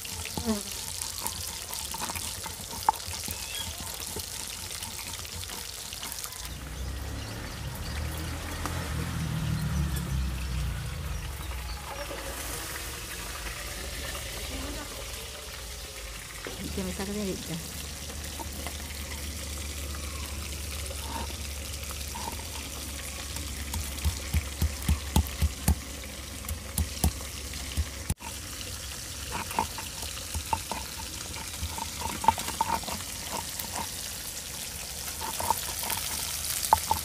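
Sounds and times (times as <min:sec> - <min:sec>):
stone roller knocking on stone: 0:23.4 - 0:28.3, 0:29.3 - 0:33.9, 0:35.2 - 0:37.0.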